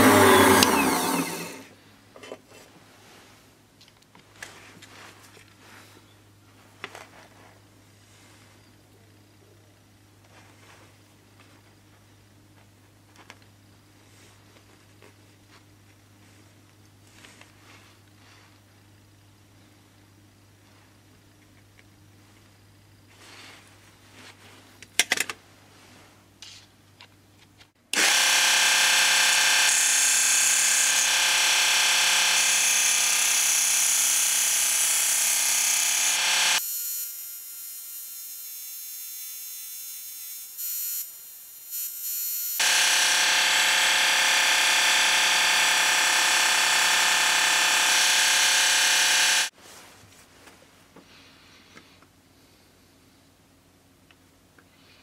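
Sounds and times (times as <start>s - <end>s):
belt sander motor whine: 0.0s - 1.7s, 28.0s - 39.3s, 40.0s - 49.5s.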